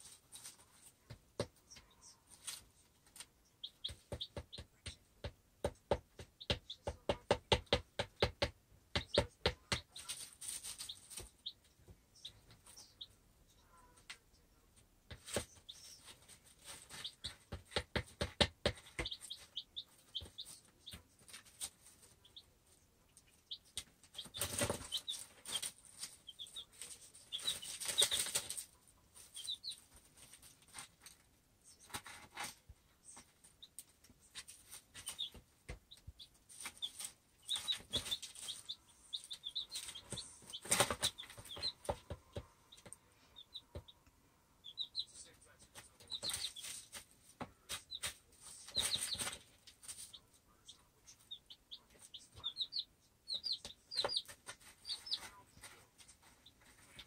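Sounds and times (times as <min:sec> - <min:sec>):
chicks peeping softly: 0:00.0 - 0:57.0
chicks pecking taps: 0:00.4 - 0:13.1, 0:15.1 - 0:22.5, 0:23.1 - 0:57.0
rustling in wood shavings: 0:10.0 - 0:11.3.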